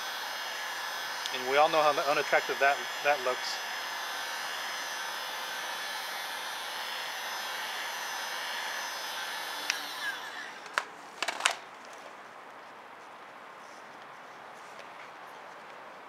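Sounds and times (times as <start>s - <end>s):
heat gun blowing: 0.0s - 11.6s.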